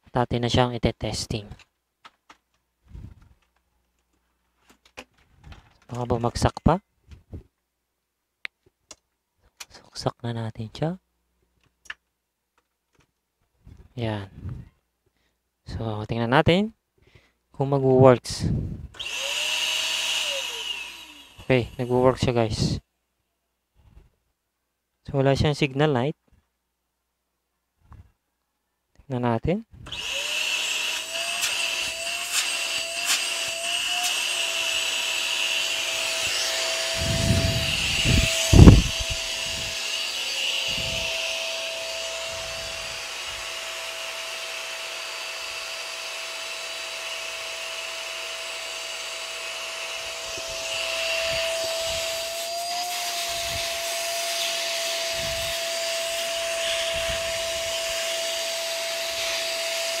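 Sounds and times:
shop vacuum motor whine: 0:19.0 - 0:22.2, 0:29.9 - 1:00.0.

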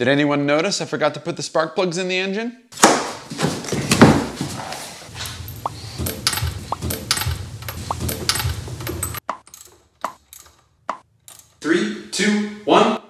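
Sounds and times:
wrench metal clicks and knocks: 0:05.4 - 0:11.6.

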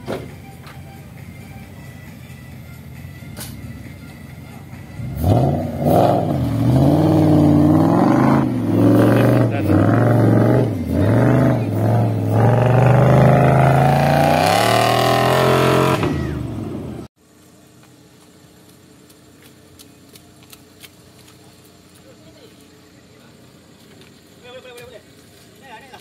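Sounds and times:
truck engine revving: 0:03.0 - 0:17.1.

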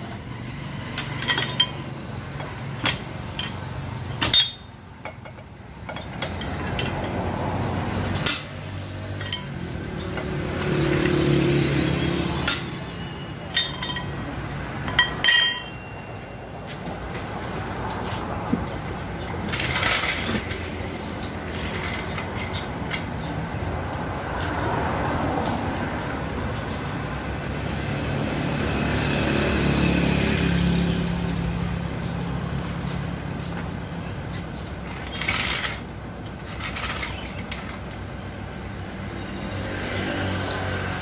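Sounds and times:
metal hand tools clinking: 0:00.9 - 0:07.3, 0:08.2 - 0:11.6, 0:12.3 - 0:16.8.

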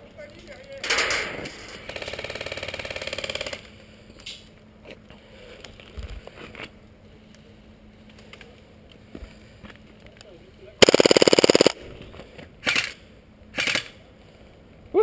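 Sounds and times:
airsoft gun full-auto fire: 0:01.8 - 0:03.6, 0:10.8 - 0:11.8.

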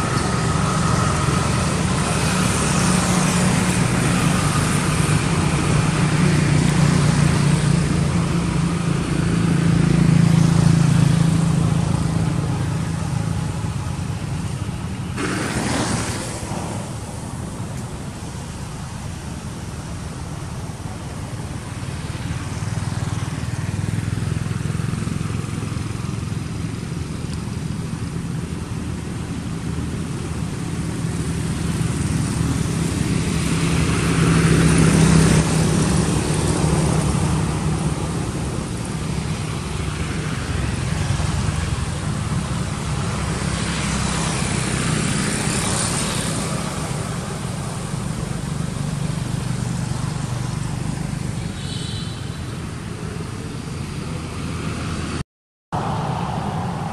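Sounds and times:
distant road traffic: 0:00.0 - 0:56.9.

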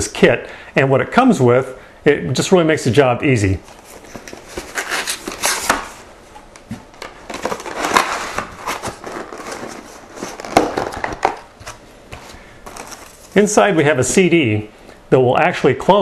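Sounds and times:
cardboard box rustling and scraping: 0:07.3 - 0:13.3.

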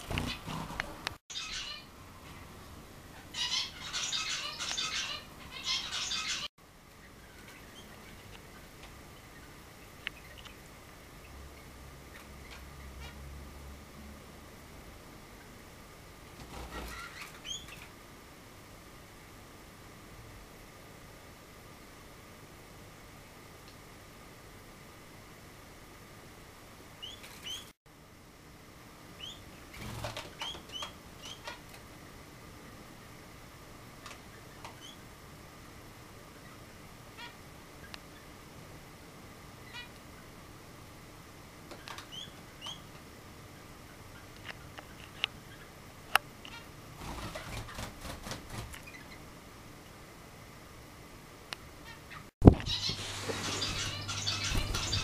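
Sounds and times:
wings fluttering: 0:00.0 - 0:01.2, 0:16.3 - 0:17.9, 0:27.0 - 0:27.7, 0:29.6 - 0:31.8, 0:46.5 - 0:49.2, 0:52.4 - 0:55.0
songbird chirping: 0:01.3 - 0:13.2, 0:51.8 - 0:55.0.

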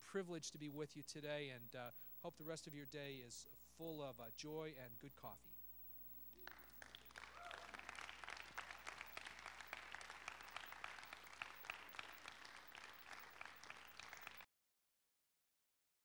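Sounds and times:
audience applauding: 0:06.3 - 0:14.5.

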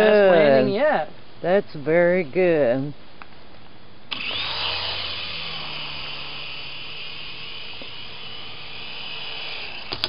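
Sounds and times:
toy helicopter rotors whining: 0:04.1 - 0:10.0.

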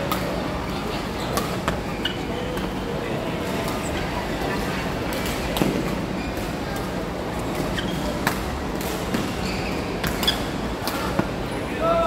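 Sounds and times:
sports hall din: 0:00.0 - 0:12.0
shoe squeaks on court floor: 0:07.7 - 0:08.2, 0:09.4 - 0:10.6.

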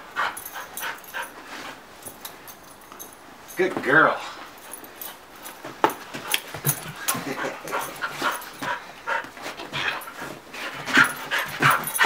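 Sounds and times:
dog panting: 0:00.0 - 0:01.8, 0:04.6 - 0:12.0.

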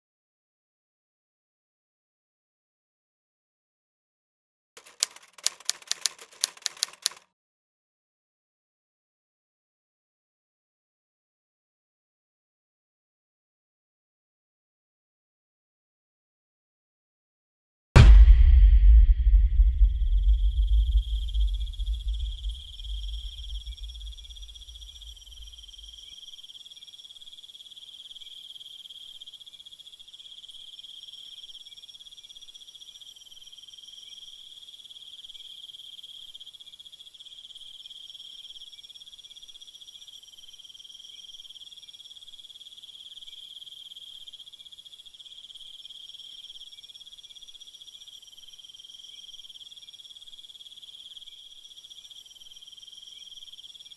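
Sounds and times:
deep low boom: 0:18.0 - 0:25.8
insect chirring: 0:20.0 - 0:53.9.

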